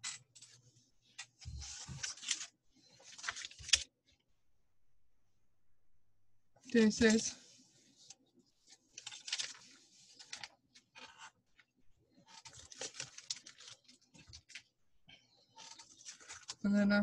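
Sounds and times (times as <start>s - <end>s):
packaging rustling and scraping: 1.3s - 3.9s, 8.7s - 11.6s, 12.2s - 14.7s, 15.5s - 16.6s.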